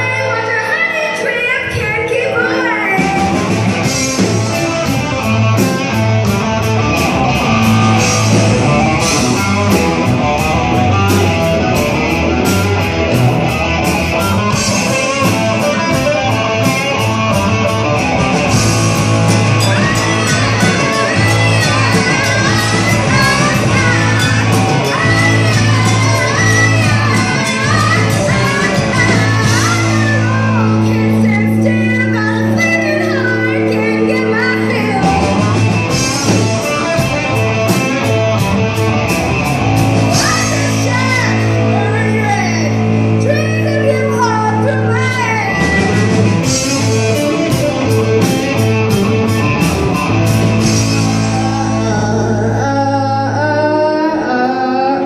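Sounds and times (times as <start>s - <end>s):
live rock band playing: 0.0s - 55.0s
woman singing lead vocal: 19.5s - 37.0s, 40.1s - 46.2s, 50.7s - 55.0s.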